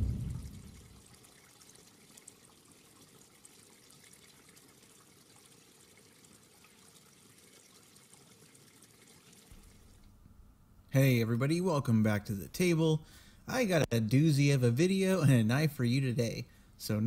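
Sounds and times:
faint stream trickling: 0:00.0 - 0:10.3.

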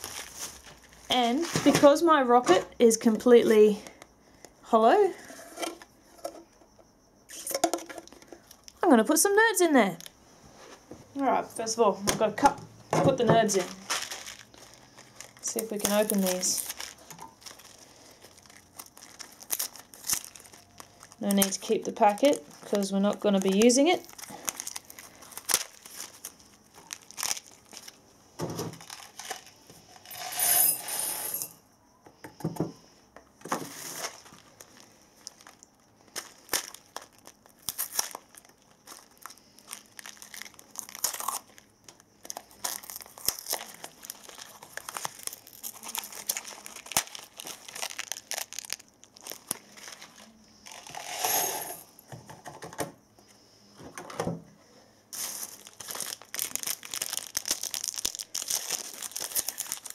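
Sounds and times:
cardboard packaging tearing: 0:00.0 - 0:01.6, 0:13.5 - 0:22.2, 0:23.3 - 0:28.0, 0:36.2 - 0:41.6, 0:42.3 - 0:50.3, 0:55.2 - 0:59.9.

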